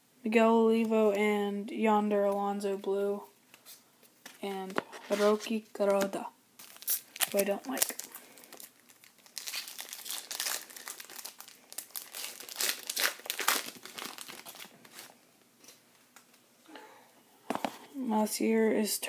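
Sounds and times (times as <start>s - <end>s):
wrapper crinkling and tearing: 6.6s - 15.2s.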